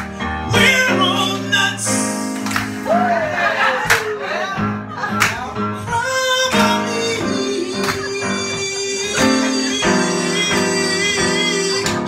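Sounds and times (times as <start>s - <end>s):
grand piano: 0.0s - 12.0s
man singing with vibrato: 0.1s - 2.3s, 5.8s - 12.0s.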